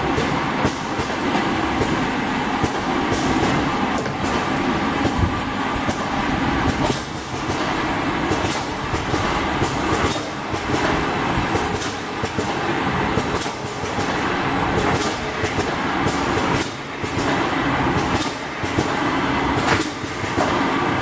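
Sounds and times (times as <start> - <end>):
bottling conveyor clatter: 0.0 - 21.0.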